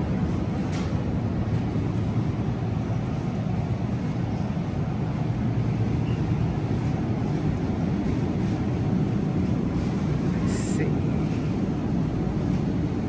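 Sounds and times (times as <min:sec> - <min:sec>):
supermarket background rumble: 0:00.0 - 0:13.0.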